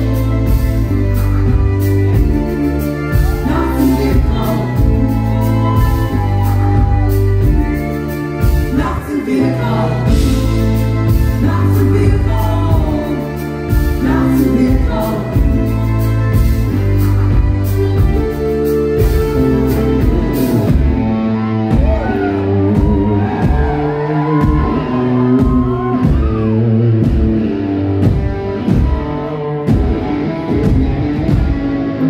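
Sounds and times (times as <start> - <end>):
live band playing: 0.0 - 32.0
woman singing: 3.0 - 7.1, 8.4 - 16.5.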